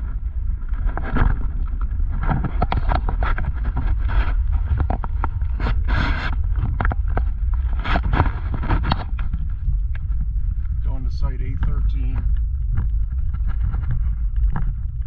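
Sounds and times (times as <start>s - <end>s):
car cabin rumble: 0.0s - 15.0s.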